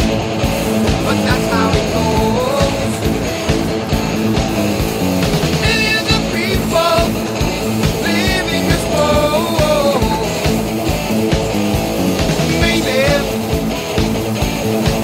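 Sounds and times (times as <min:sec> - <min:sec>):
guitar: 0:00.0 - 0:15.0
rock music: 0:00.0 - 0:15.0
steady drum beat: 0:00.0 - 0:15.0
person singing: 0:01.0 - 0:03.2, 0:05.6 - 0:10.7, 0:12.4 - 0:13.6.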